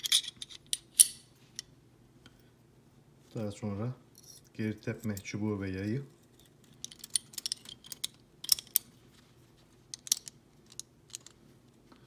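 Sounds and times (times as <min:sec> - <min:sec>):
small metal clicks: 0:09.9 - 0:11.4.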